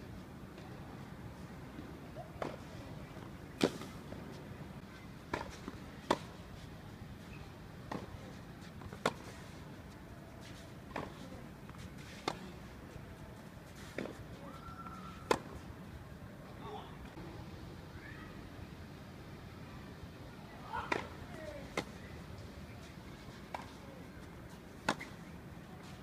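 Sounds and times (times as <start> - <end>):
low outdoor hum: 0.0 - 26.0
tennis ball struck by racquet: 24.8 - 25.2.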